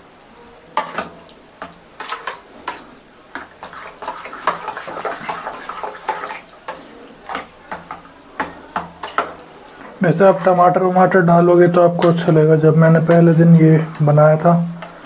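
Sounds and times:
wet squelching stirring: 0.7s - 15.0s.

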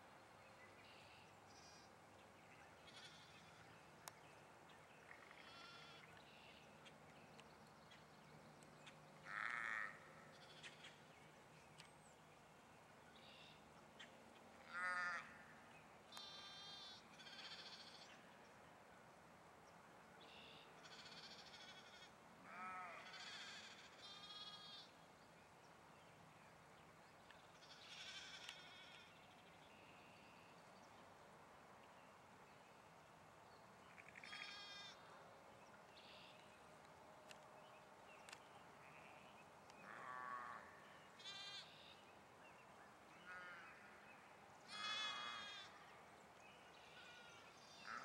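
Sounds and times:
sheep and lambs bleating: 2.9s - 3.6s, 5.4s - 6.1s, 9.3s - 10.9s, 14.7s - 15.3s, 16.2s - 18.0s, 20.8s - 24.9s, 27.6s - 29.1s, 34.2s - 35.0s, 39.8s - 41.8s, 44.7s - 45.8s, 46.8s - 48.0s.

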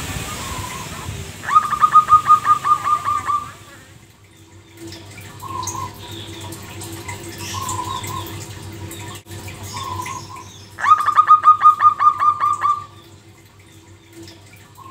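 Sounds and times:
dove rattling song: 0.2s - 14.9s
dove cooing: 0.4s - 3.8s, 4.8s - 13.0s.

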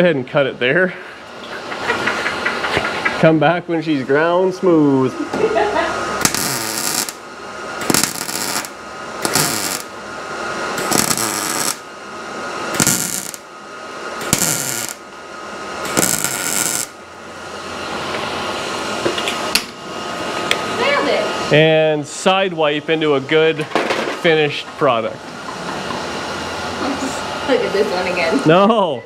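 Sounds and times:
crackling welding bursts: 6.2s - 10.0s, 10.7s - 11.9s, 12.7s - 13.6s, 14.2s - 15.1s, 15.8s - 17.0s.

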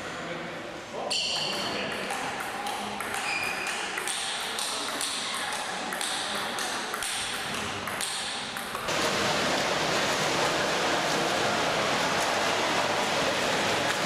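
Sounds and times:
table tennis ball clicks: 1.3s - 8.9s
swimmer splashing water: 8.9s - 14.0s.

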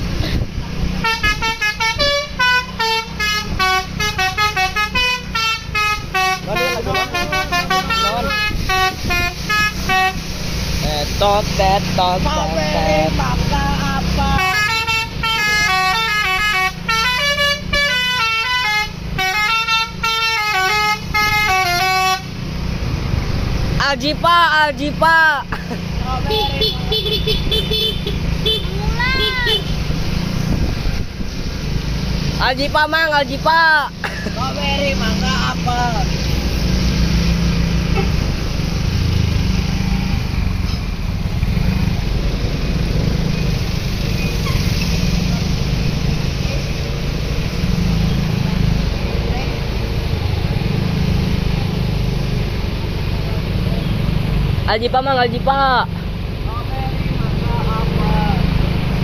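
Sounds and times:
bus engine rumble: 0.0s - 59.0s
bus musical horn melody: 1.0s - 10.4s, 14.3s - 22.5s, 26.3s - 29.8s.

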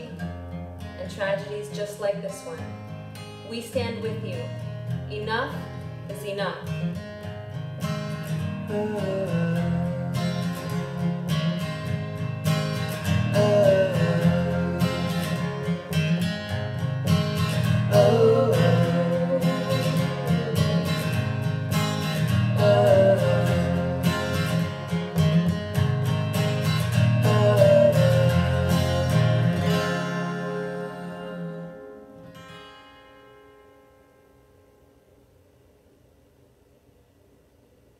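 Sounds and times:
acoustic guitar strumming: 0.0s - 35.9s
man and woman singing: 8.6s - 11.2s, 13.3s - 16.4s, 17.6s - 21.4s, 22.5s - 24.8s, 27.2s - 31.8s.

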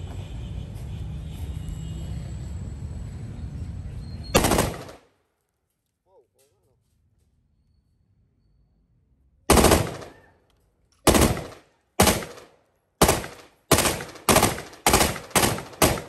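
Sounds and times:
rifle shots: 4.4s - 5.1s, 9.5s - 10.3s, 11.0s - 16.0s.

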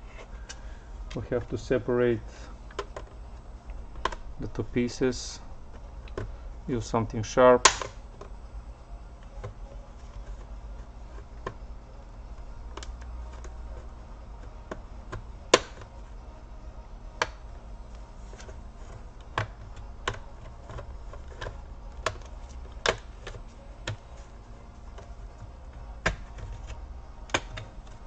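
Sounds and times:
plastic clips snapping loose: 7.6s - 8.0s, 19.3s - 24.0s, 27.3s - 27.7s.

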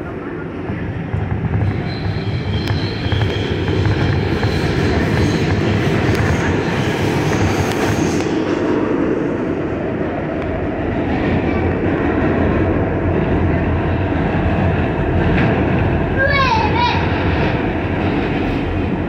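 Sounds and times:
subway train wheels rumbling on rails: 0.0s - 19.0s.

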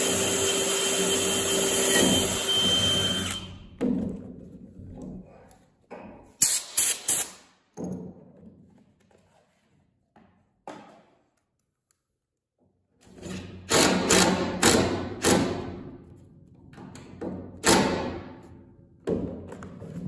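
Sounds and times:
impact driver hammering screw: 0.0s - 3.5s, 13.7s - 15.7s.

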